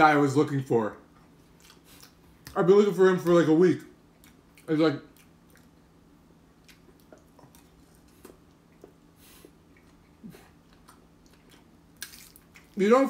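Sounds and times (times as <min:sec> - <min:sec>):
chewing: 0:01.2 - 0:02.6, 0:04.1 - 0:05.8, 0:06.5 - 0:12.8.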